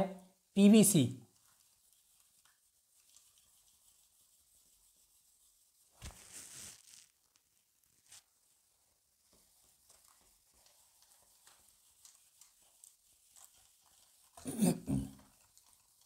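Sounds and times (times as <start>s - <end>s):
duster rubbing whiteboard: 1.4s - 7.0s, 8.1s - 14.5s.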